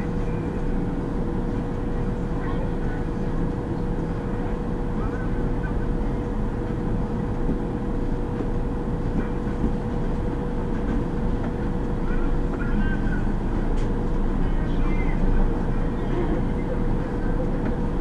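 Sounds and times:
bus engine and road rumble: 0:00.0 - 0:18.0
constant hum: 0:00.0 - 0:18.0.

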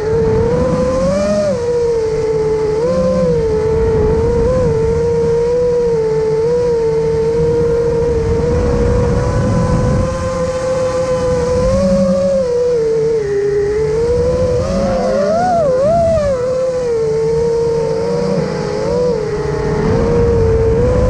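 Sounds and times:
drone motors whining: 0:00.0 - 0:21.0
rushing wind noise: 0:00.0 - 0:21.0.

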